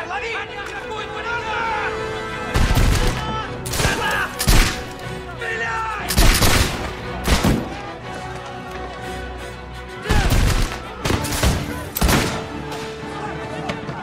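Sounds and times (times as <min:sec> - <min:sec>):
film music: 0:00.0 - 0:14.0
musket shots: 0:02.6 - 0:05.0, 0:06.1 - 0:07.8, 0:10.1 - 0:12.9
people shouting: 0:03.0 - 0:06.3, 0:09.9 - 0:14.0.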